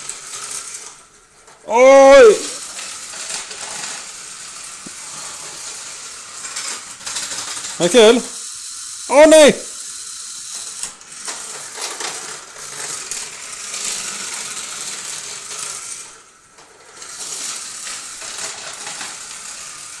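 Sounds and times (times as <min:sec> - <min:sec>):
toy car rattling on plastic track: 0:00.0 - 0:20.0.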